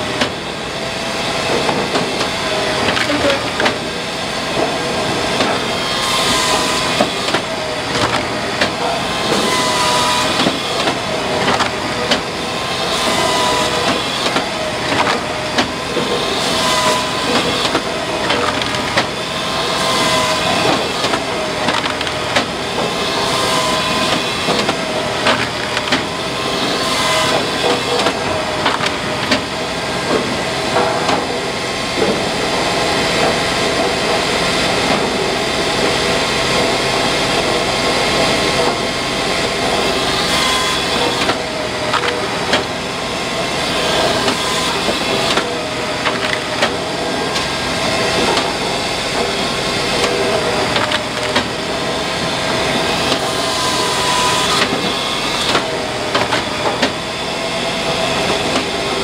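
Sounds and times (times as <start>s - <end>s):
firewood processor running: 0.0s - 59.0s
split wood clattering down: 18.3s - 19.1s, 21.0s - 22.5s.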